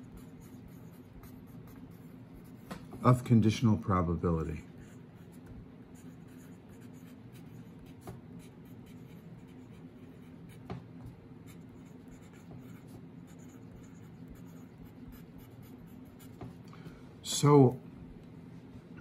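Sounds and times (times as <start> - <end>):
pen scratching on paper: 0.0 - 2.8, 4.7 - 10.7, 11.4 - 16.6.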